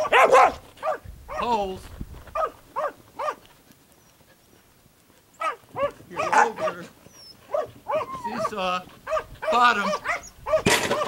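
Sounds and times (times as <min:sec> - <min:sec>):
dog barking: 0:00.0 - 0:01.5, 0:02.3 - 0:03.4, 0:05.4 - 0:06.9, 0:07.5 - 0:11.0.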